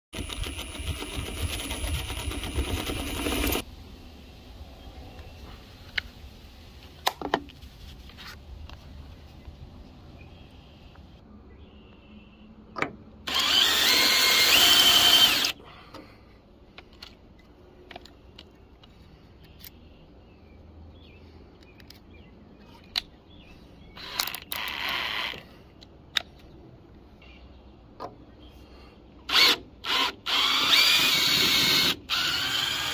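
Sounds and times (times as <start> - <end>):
cordless drill whining: 0.2 - 3.6, 13.3 - 15.6, 29.3 - 32.9.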